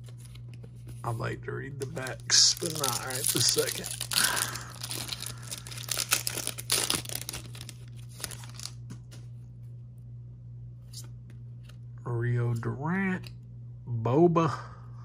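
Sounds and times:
foil wrapper crinkling and tearing: 0:01.8 - 0:08.8
cards clicking and rustling: 0:01.8 - 0:09.3.

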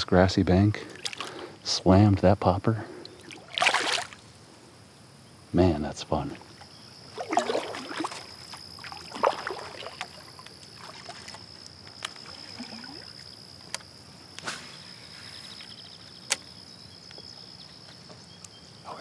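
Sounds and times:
high-pitched insect drone: 0:06.4 - 0:17.9.

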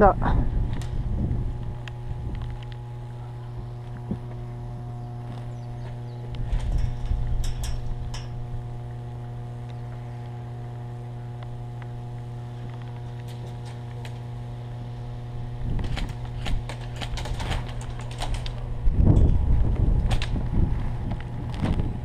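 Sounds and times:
electrical hum: 0:00.0 - 0:22.0.

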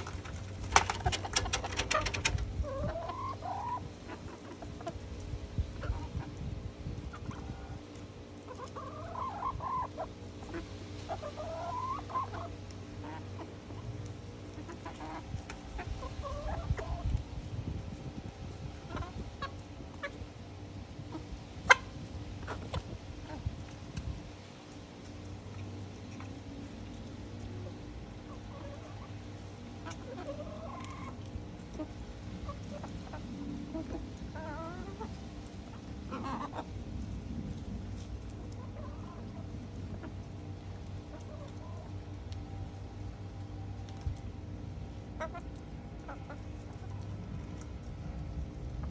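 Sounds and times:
hens clucking: 0:00.0 - 0:17.2, 0:18.6 - 0:20.3, 0:21.0 - 0:24.1, 0:27.3 - 0:36.8, 0:38.4 - 0:42.2, 0:45.2 - 0:47.1
wavering drawn-out hen calls: 0:00.8 - 0:04.9, 0:08.5 - 0:13.6, 0:32.4 - 0:36.7.

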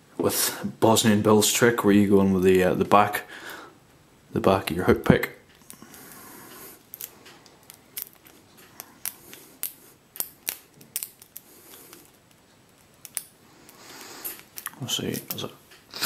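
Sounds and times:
lock pick clicking on pins: 0:06.9 - 0:13.3.

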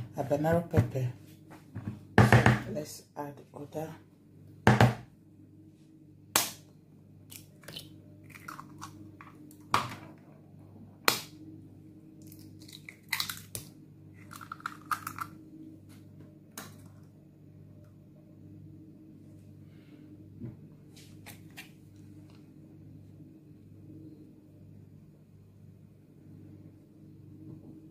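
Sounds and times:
eggs cracking against bowl: 0:07.3 - 0:09.9, 0:12.2 - 0:15.4.

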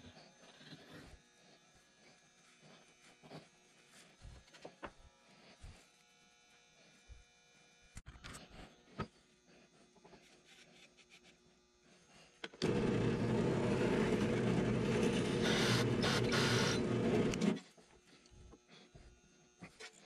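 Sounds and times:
drill press running: 0:12.6 - 0:17.6.

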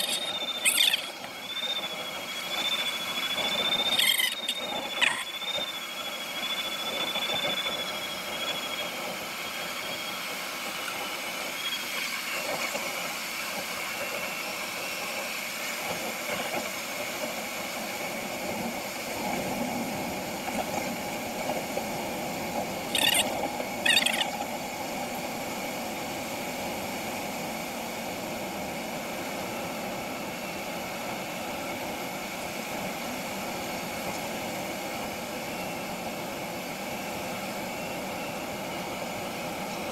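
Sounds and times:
short high chirps: 0:00.0 - 0:01.9, 0:02.5 - 0:05.4, 0:22.9 - 0:24.4
high thin tone: 0:02.5 - 0:05.4.

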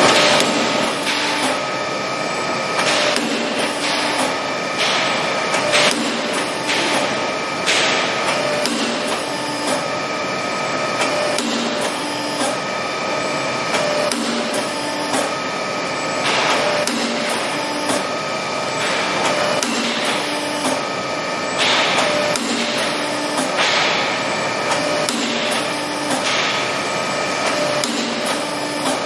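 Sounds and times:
machine hum: 0:00.0 - 0:29.0
punch clacking through steel: 0:07.7 - 0:09.8.

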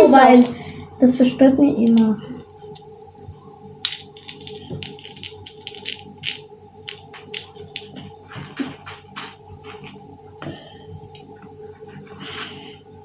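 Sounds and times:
plastic beads rattling: 0:03.9 - 0:07.9.

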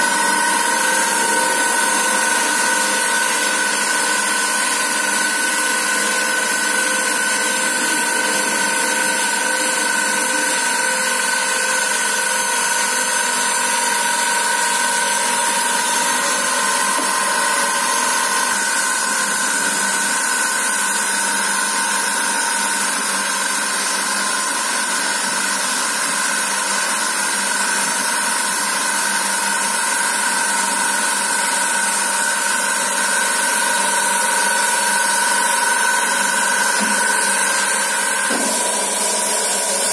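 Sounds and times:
machine hissing and whining: 0:00.0 - 0:39.9.

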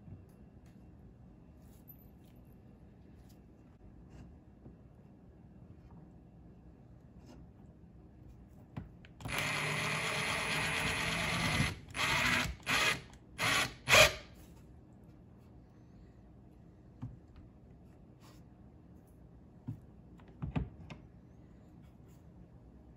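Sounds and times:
cordless drill driving screw: 0:09.2 - 0:14.2.

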